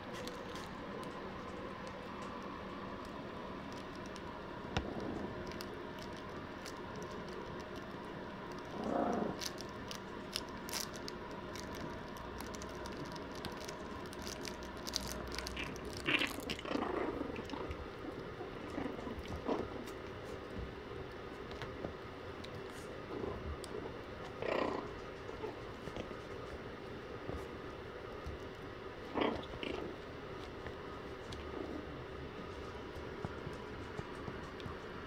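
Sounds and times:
puppies scuffling and chewing: 0.0s - 35.0s
puppy growls: 8.6s - 11.0s, 12.6s - 20.1s, 23.1s - 26.3s, 29.0s - 30.5s, 31.1s - 33.4s.

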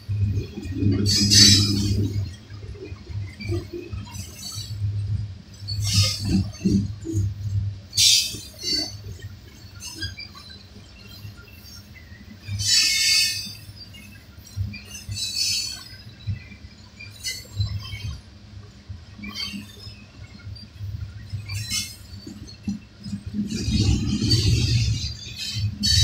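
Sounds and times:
freight train rolling rumble: 0.0s - 9.4s, 22.9s - 26.0s
metallic wheel squeals: 0.5s - 2.3s, 23.3s - 26.0s.

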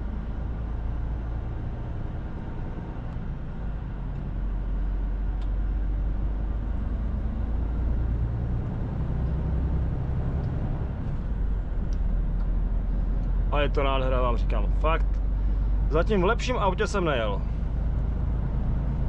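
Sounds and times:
diesel engine cruising: 0.0s - 19.0s.

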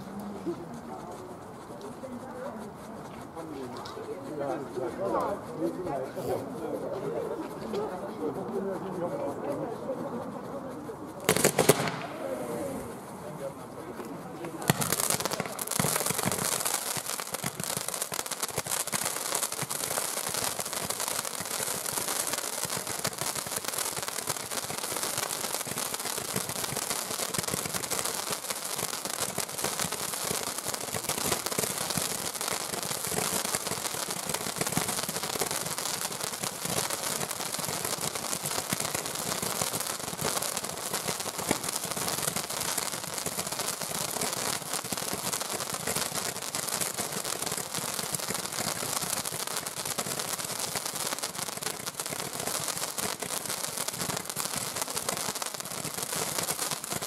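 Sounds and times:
fireworks crackling and popping: 0.0s - 57.0s.

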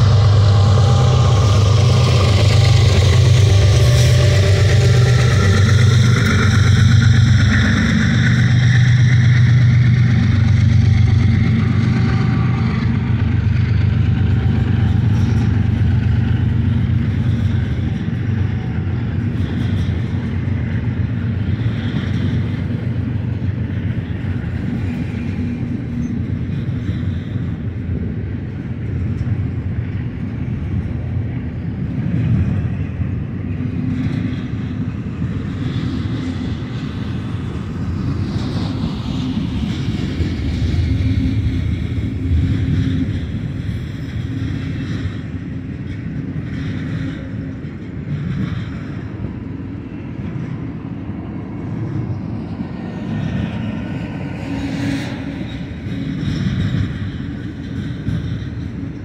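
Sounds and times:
low hum: 0.0s - 19.0s
train wheels rumbling on rail: 0.0s - 59.0s.

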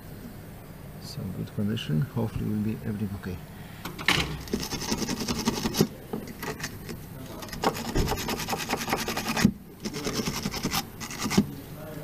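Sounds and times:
metal tool scraping rusty pipe: 4.4s - 11.4s.

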